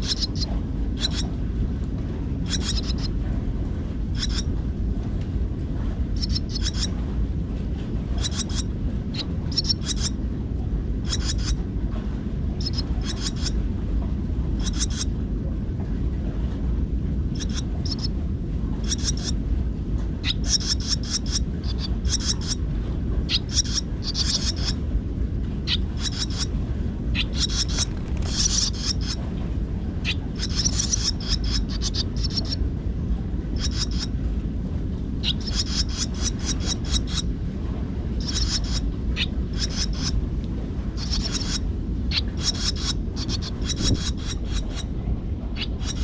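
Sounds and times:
swallows twittering: 0.0s - 1.3s, 2.4s - 3.1s, 4.2s - 4.5s, 6.2s - 6.9s, 8.2s - 10.2s, 11.0s - 11.6s, 12.6s - 13.6s, 14.6s - 15.1s, 17.3s - 18.1s, 18.8s - 19.4s, 20.2s - 22.6s, 23.3s - 24.8s, 25.7s - 26.5s, 27.1s - 29.2s, 30.0s - 32.6s, 33.6s - 34.1s, 35.2s - 37.3s, 38.2s - 40.2s, 41.0s - 44.9s, 45.6s - 46.0s
steady low rumble: 0.0s - 46.0s.

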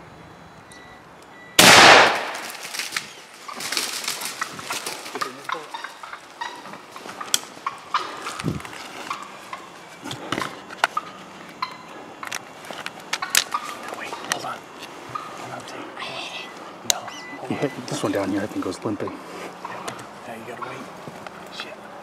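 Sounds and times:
shotgun blast: 1.6s - 2.6s
rustling dry leaves and twigs: 2.1s - 16.7s.

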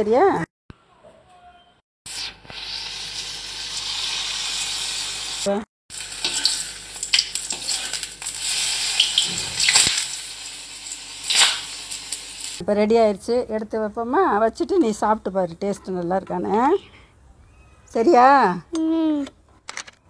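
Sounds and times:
deep-frying sizzle: 2.1s - 12.6s.

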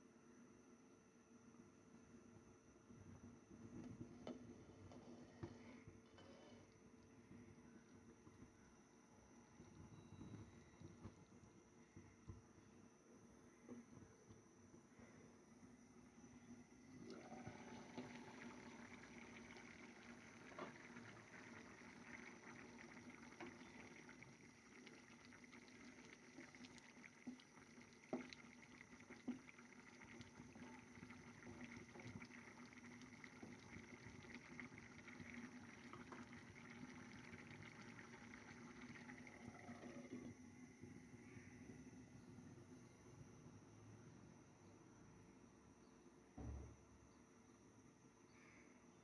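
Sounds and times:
curry bubbling in a pan: 17.0s - 40.4s.

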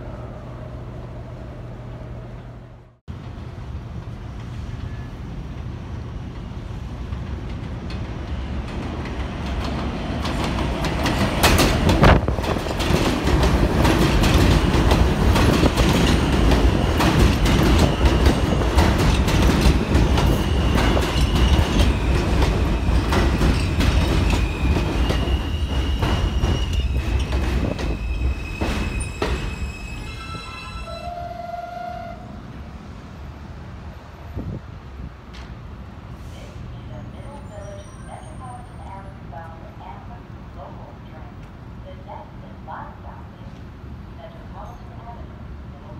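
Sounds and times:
train rumble: 0.0s - 45.9s
wheels clacking over rail joints: 7.1s - 29.5s
high wheel squeal: 20.2s - 31.7s.

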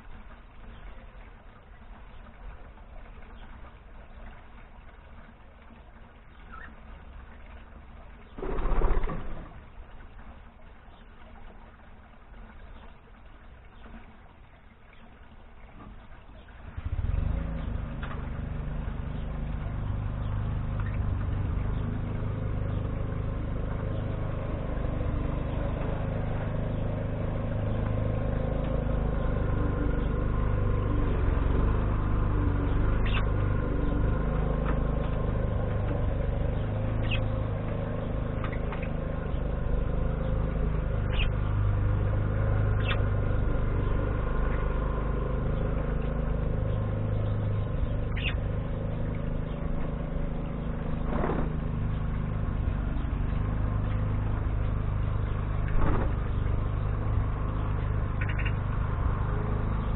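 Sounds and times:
budgerigar chirps: 48.1s - 48.4s, 58.2s - 58.6s.

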